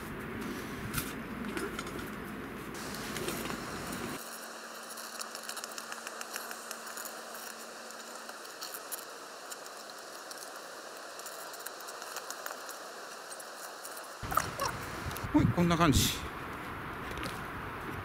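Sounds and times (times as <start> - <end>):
small irregular clicks: 4.8 - 14.1.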